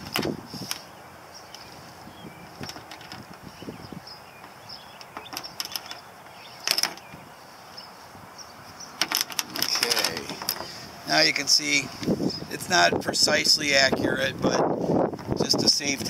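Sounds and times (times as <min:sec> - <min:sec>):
rigging clicks and rattles: 0:00.0 - 0:00.9, 0:02.5 - 0:03.5, 0:04.4 - 0:07.2, 0:09.0 - 0:10.8
metal hooks clattering: 0:06.6 - 0:07.1, 0:09.0 - 0:10.7.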